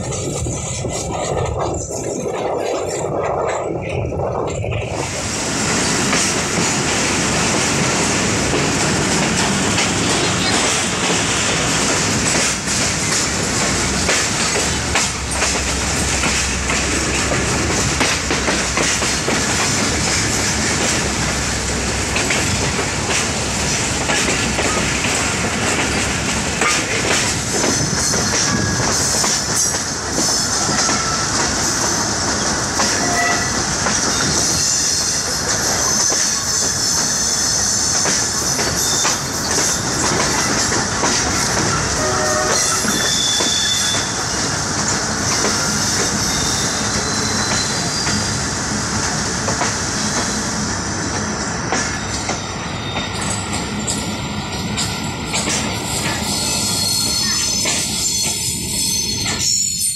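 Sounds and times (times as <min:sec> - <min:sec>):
train wheels clattering over rail joints: 0:00.0 - 0:59.6
high wheel squeal: 0:27.6 - 0:32.0, 0:32.8 - 0:40.8, 0:41.6 - 0:44.5, 0:45.3 - 0:48.4, 0:56.1 - 0:59.9.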